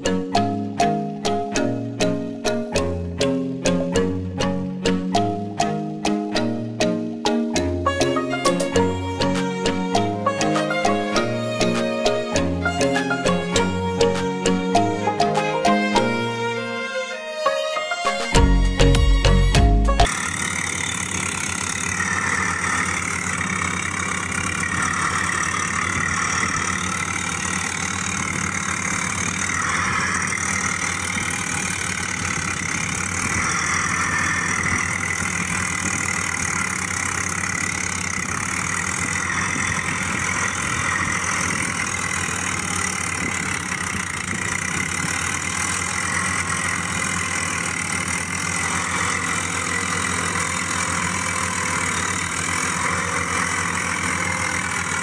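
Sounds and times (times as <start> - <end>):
tractor engine idling: 18.3 - 55.0.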